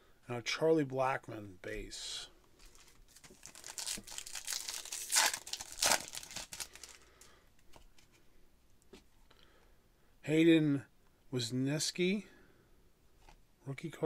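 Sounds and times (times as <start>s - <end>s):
wrapper tearing and crinkling: 2.7s - 7.0s.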